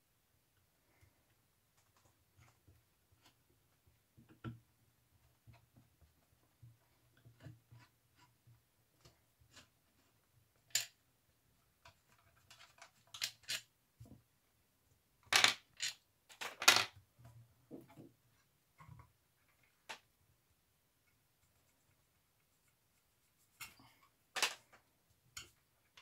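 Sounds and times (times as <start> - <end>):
scrapes and clicks of handling: 11.8 - 13.7, 21.0 - 26.0.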